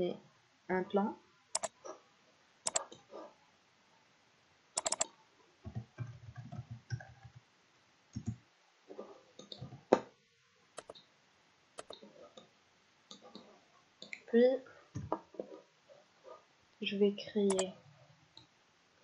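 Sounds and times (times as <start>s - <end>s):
mouse clicks: 1.6s - 1.8s, 2.7s - 3.0s, 4.8s - 5.1s, 10.8s - 11.1s, 11.8s - 12.5s, 17.5s - 17.7s.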